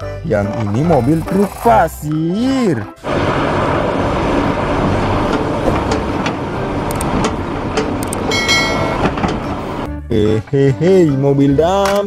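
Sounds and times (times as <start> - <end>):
diesel excavator engine running: 2.8 - 10.1
machinery knocks: 4.7 - 9.7
brief high tone: 8.3 - 9.1.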